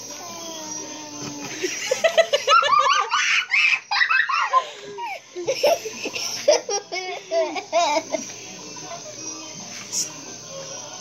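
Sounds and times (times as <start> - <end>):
laughter and giggling: 1.4 - 8.3.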